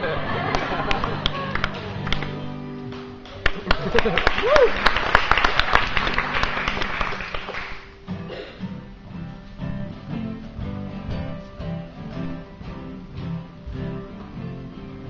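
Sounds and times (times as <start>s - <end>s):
acoustic guitar strumming: 0.0s - 4.2s, 5.9s - 15.0s
clapping and crowd noise: 0.0s - 8.0s.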